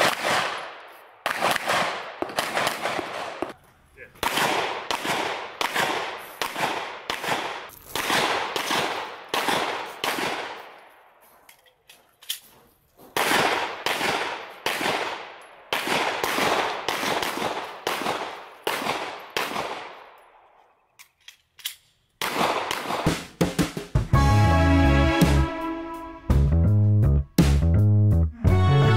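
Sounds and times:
pistol shots with echo: 0.0s - 3.6s, 4.2s - 11.0s, 13.2s - 20.5s, 22.2s - 23.1s.

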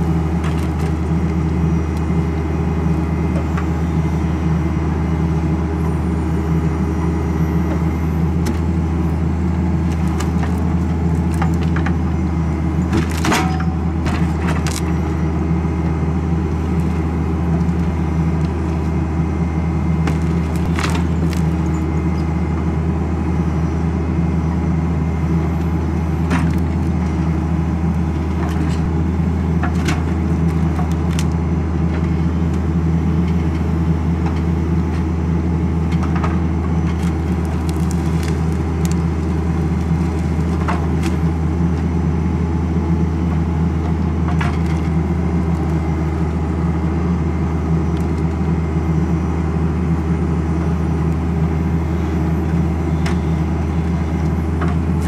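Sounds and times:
diesel tractor engine running: 0.0s - 55.0s
logs knocking and cracking: 0.3s - 2.1s, 9.8s - 12.1s, 12.8s - 15.0s, 20.0s - 21.9s, 26.2s - 27.2s, 29.6s - 32.6s, 35.9s - 41.3s.

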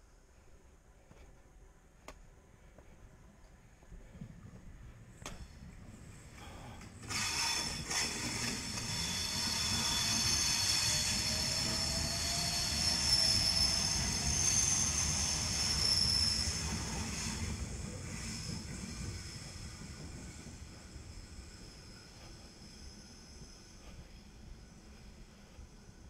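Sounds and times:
train rumbling: 0.0s - 26.0s
high metallic squeal: 7.2s - 17.4s.

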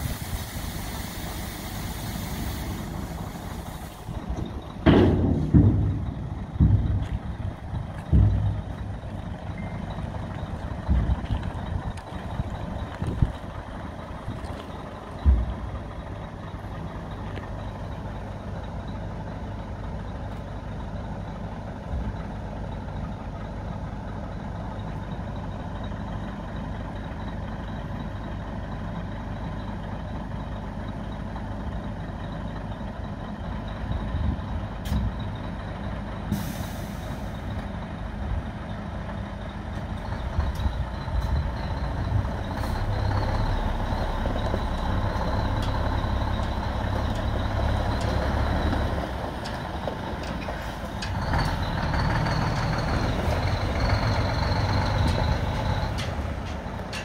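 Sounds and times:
air hiss: 0.0s - 4.1s, 36.3s - 37.4s
diesel truck engine idling: 0.0s - 57.0s.

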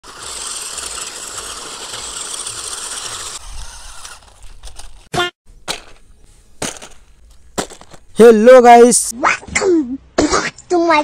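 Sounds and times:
toy car motor whirring: 0.0s - 5.1s.

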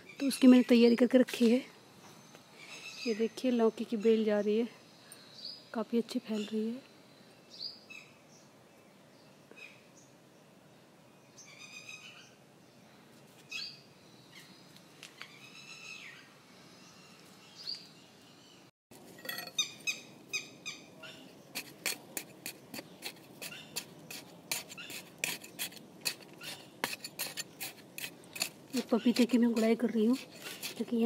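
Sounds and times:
birds chirping: 0.0s - 31.0s
hand hoe chopping soil: 21.5s - 31.0s.

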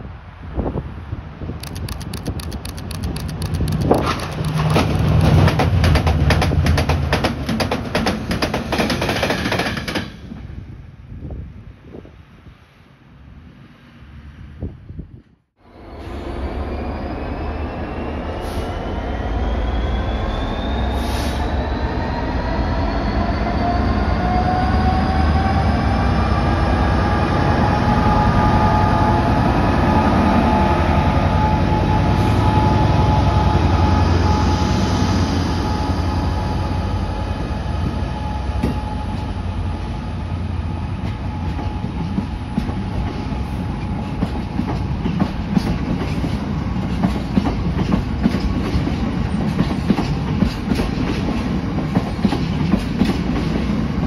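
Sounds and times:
diesel locomotive passing: 0.0s - 15.0s, 15.6s - 54.0s
tank wagons rumbling: 3.2s - 7.0s.

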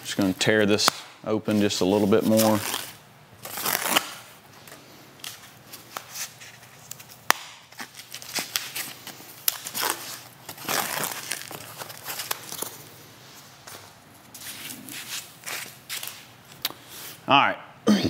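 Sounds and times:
foam wrap crinkling and tearing: 0.8s - 4.4s, 5.2s - 12.9s.

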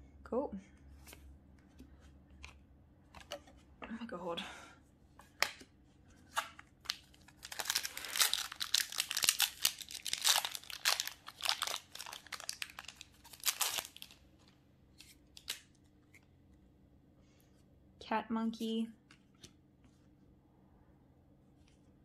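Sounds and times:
foil wrapper crinkling and tearing: 6.8s - 14.2s, 15.3s - 15.7s.

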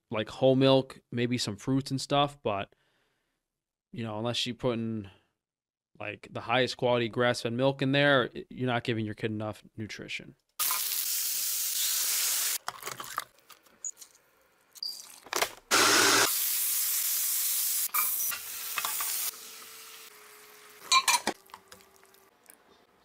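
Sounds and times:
liquid sizzling in hot pan: 10.6s - 12.6s, 16.1s - 22.3s
onions sizzling in hot oil: 10.6s - 12.6s, 16.1s - 21.1s.

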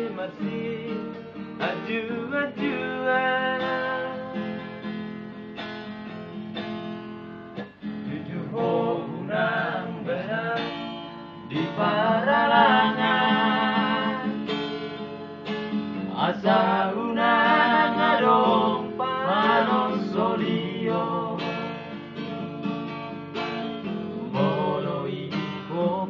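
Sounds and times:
men singing: 0.0s - 4.6s, 8.0s - 14.6s, 16.0s - 21.7s, 24.0s - 26.0s
acoustic guitar strumming: 0.0s - 26.0s.

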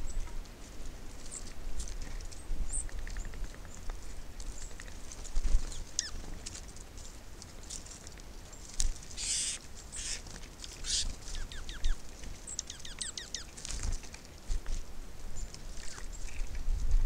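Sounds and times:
small ticks: 1.4s - 14.8s
down-slurred bird chirps: 9.2s - 10.2s, 10.8s - 13.5s
birds harsh calls: 9.2s - 13.5s.

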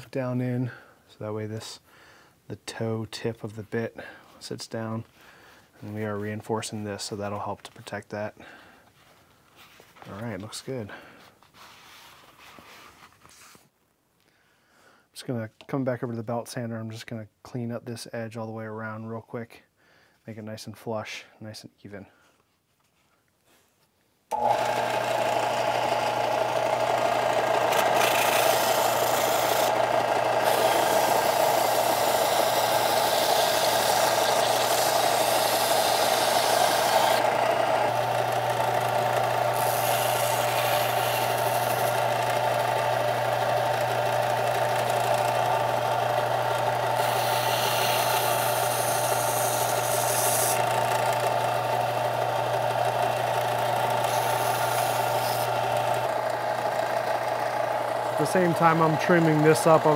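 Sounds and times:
belt sander running: 24.3s - 59.9s.

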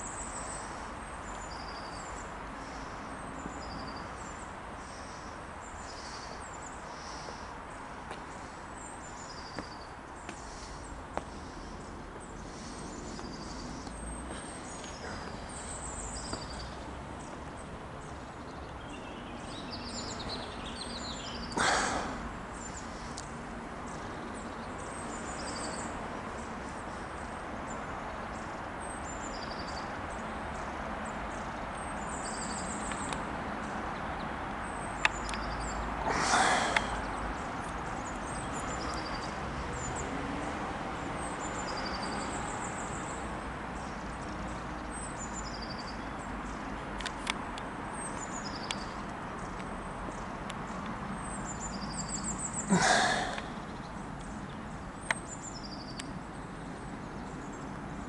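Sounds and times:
outdoor background rush: 0.0s - 58.0s
small birds chirping: 0.0s - 58.0s
loud breathy bursts: 21.6s - 22.2s, 36.0s - 37.1s, 52.7s - 53.6s.

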